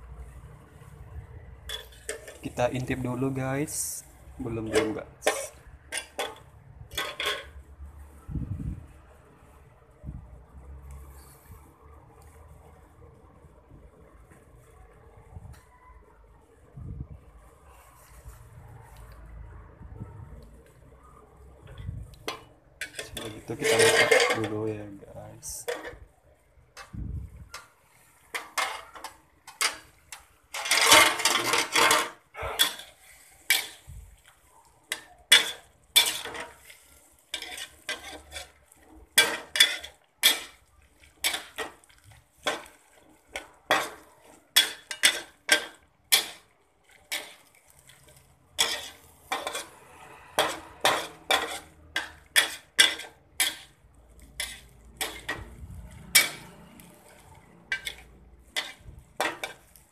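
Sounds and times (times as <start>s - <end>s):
spatula scraping a pan: 1.6s - 7.6s, 10.9s - 11.6s, 21.6s - 59.9s.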